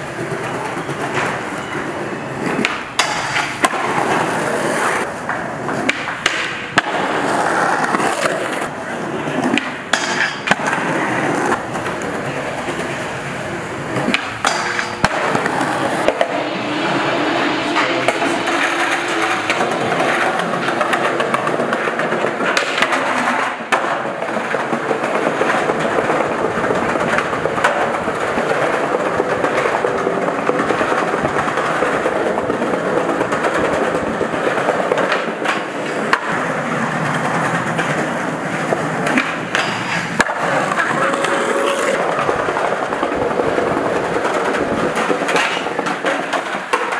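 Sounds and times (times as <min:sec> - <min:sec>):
skateboard trucks grinding metal: 0:00.0 - 0:46.9
skateboards rolling on concrete: 0:00.0 - 0:46.9
skateboard tail pops and landings: 0:05.3 - 0:08.5.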